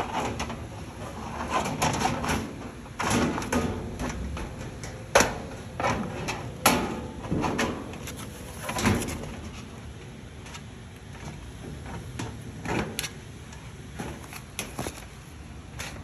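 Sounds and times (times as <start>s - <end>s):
sheet metal scraping and rattling: 0.0s - 9.8s.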